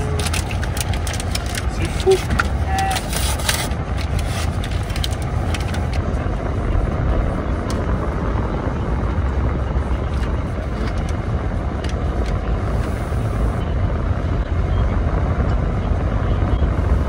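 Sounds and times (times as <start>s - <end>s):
plastic wrapper crackling: 0.0s - 6.1s
car engine rumble inside cabin: 0.0s - 17.0s.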